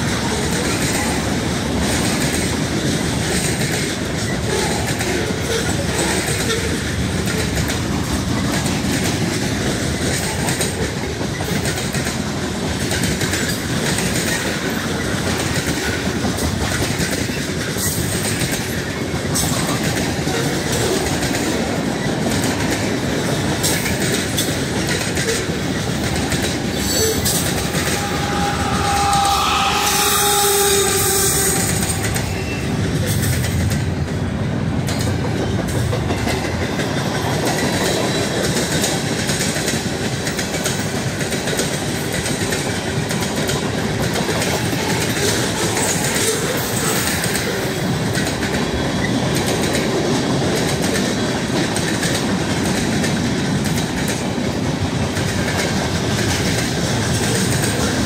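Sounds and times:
freight train rolling by: 0.0s - 58.0s
wheels clacking over rail joints: 0.0s - 58.0s.

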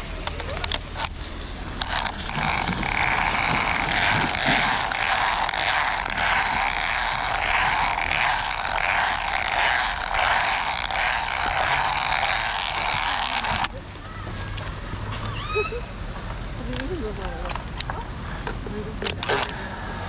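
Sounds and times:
zipline trolley whirring on cable: 0.0s - 18.1s, 18.9s - 20.0s.

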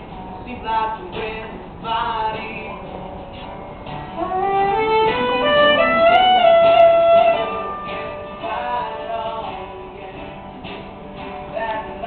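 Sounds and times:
acoustic guitar strumming: 0.0s - 12.0s
fiddle long held note: 4.2s - 8.4s.

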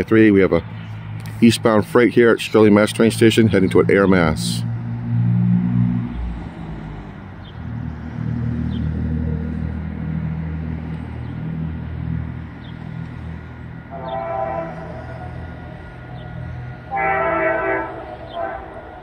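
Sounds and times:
diesel locomotives rumbling: 0.0s - 19.0s
locomotive air horn chord: 13.8s - 19.0s.

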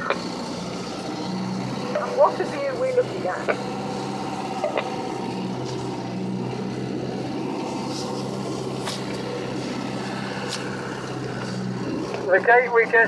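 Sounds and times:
vehicle engine running at low speed: 0.0s - 13.0s.

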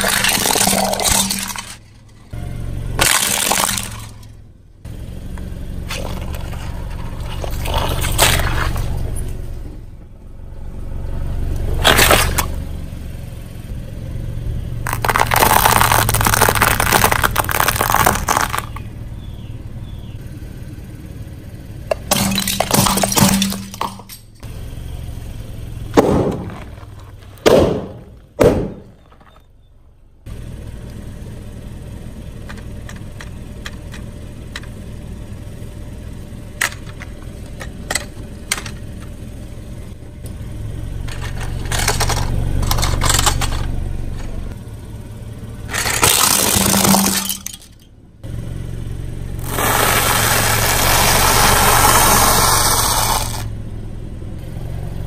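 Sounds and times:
car engine rumble: 0.0s - 55.0s
rubber balls popping: 14.9s - 18.9s
tyre crunching dry noodles: 14.9s - 18.9s, 49.4s - 53.4s.

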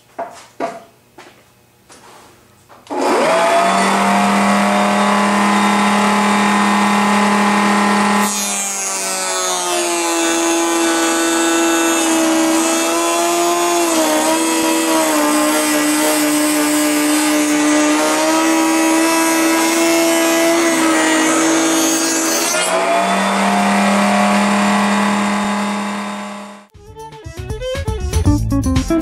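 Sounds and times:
router high whine: 2.9s - 9.0s, 17.3s - 26.7s.

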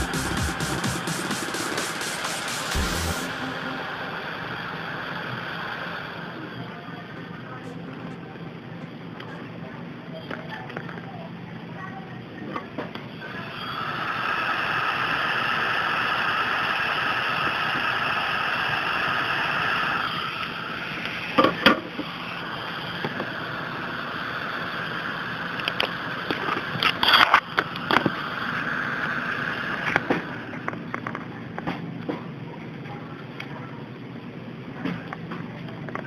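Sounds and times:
hot air blower blowing: 0.0s - 7.7s, 13.2s - 30.6s.

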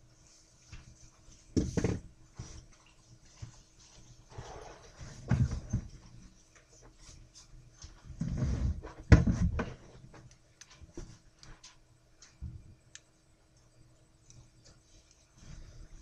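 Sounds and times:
faint steady hum: 0.0s - 16.0s
soft thumps and rustling: 0.6s - 11.7s.

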